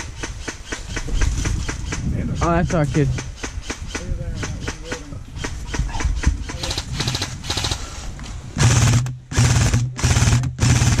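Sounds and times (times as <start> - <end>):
airsoft rifle firing full-auto: 8.6 - 11.0.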